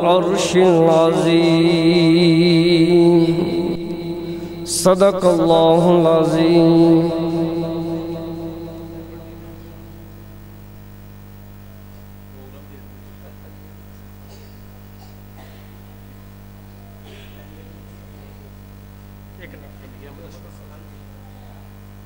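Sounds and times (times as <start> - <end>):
man reciting with reverb: 0.0 - 10.5
electrical mains hum: 0.0 - 22.0
faint murmurs and shuffles: 11.6 - 18.8, 19.4 - 21.9.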